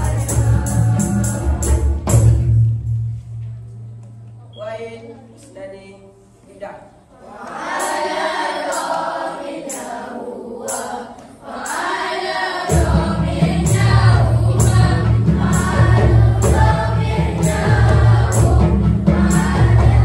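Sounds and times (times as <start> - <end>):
children's choir singing: 0.0 - 2.6, 7.1 - 20.0
large hand drums beating: 0.0 - 3.6, 12.6 - 20.0.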